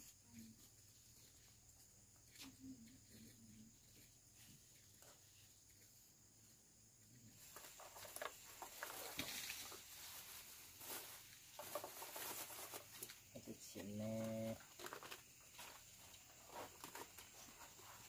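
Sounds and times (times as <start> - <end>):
faint rustling and crackling: 7.2 - 18.0.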